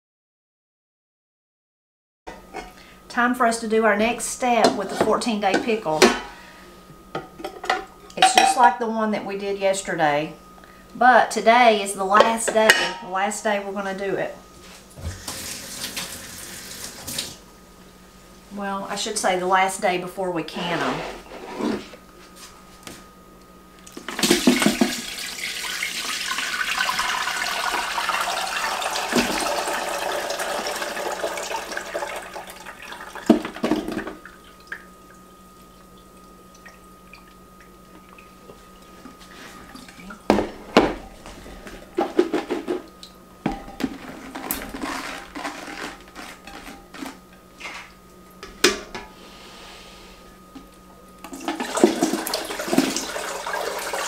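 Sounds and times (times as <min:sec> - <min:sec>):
liquid pouring and splashing: 0:24.2 - 0:35.2.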